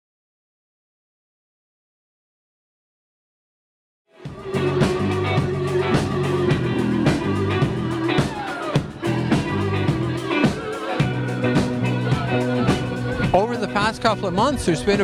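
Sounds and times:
rock band playing live: 0:04.2 - 0:15.0.

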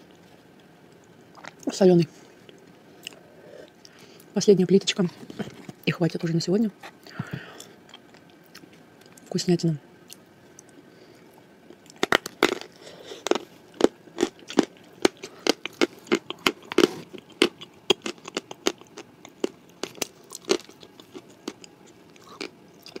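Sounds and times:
crunchy chewing of cookie: 0:10.0 - 0:23.0.

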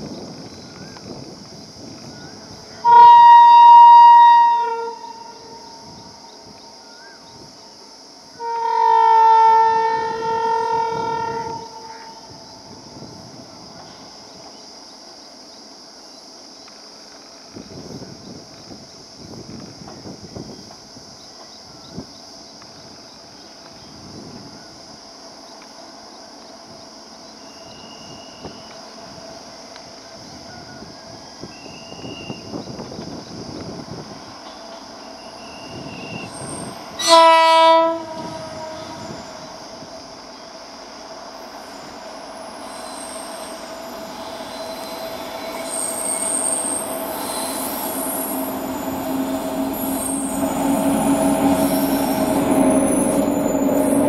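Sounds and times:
distant electric train running: 0:00.0 - 0:54.0
locomotive air horn: 0:02.8 - 0:06.0, 0:08.4 - 0:12.4, 0:35.4 - 0:39.6
high-pitched insect drone: 0:03.7 - 0:54.0.

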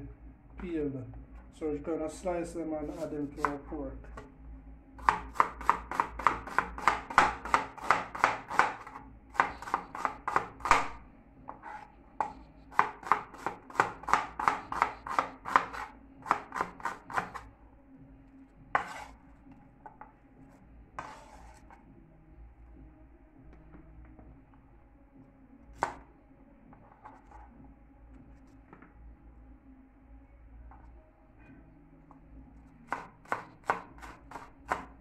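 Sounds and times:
knife chopping onion on board: 0:02.9 - 0:03.6, 0:05.0 - 0:17.4, 0:18.8 - 0:19.1, 0:25.8 - 0:26.0, 0:32.9 - 0:35.0.

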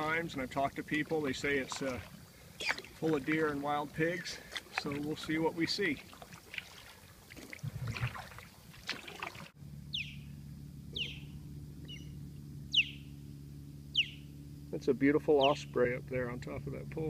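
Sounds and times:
paddle strokes swishing in water: 0:00.0 - 0:09.6
low hum: 0:00.0 - 0:17.0
osprey shrill calls: 0:02.6 - 0:02.9, 0:09.9 - 0:13.1, 0:13.9 - 0:14.3, 0:15.4 - 0:15.6.

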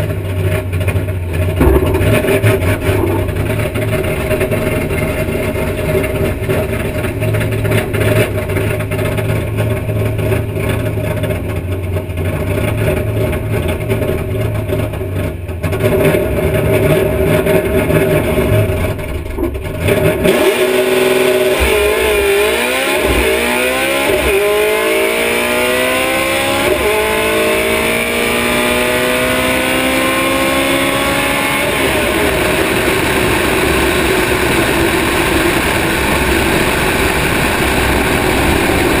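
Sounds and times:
drag car engine revving: 0:00.0 - 0:39.0
wind and tyre noise: 0:00.0 - 0:39.0.

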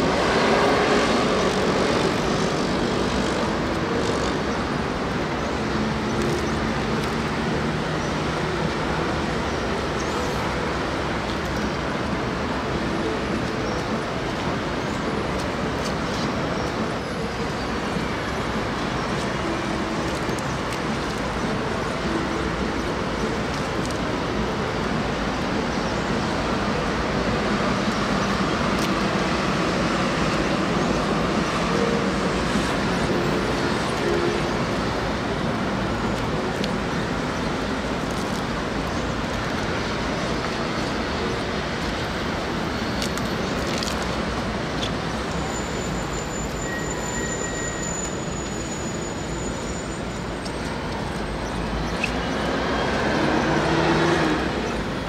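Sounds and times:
city traffic noise: 0:00.0 - 0:55.0
thin high whistle: 0:45.5 - 0:50.2.

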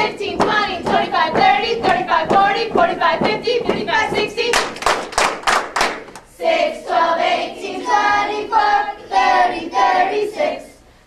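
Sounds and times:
hand claps: 0:00.4 - 0:06.3
children chanting in unison: 0:06.4 - 0:10.8.

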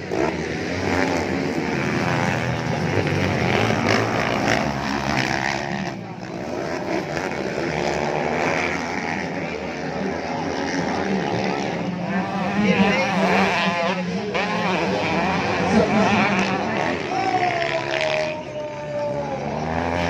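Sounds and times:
motocross bikes revving: 0:00.0 - 0:20.0.

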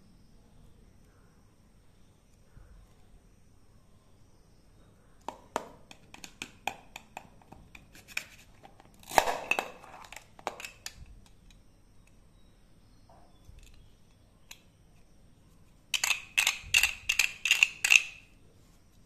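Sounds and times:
toy knife clicking on plastic: 0:16.0 - 0:18.2.

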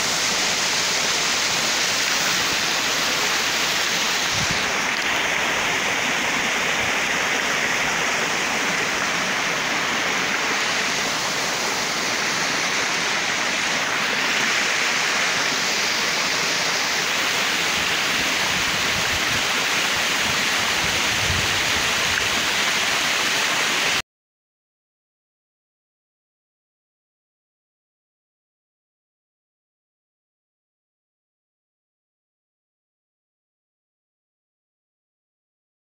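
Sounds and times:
steady rushing hiss: 0:00.0 - 0:24.0.

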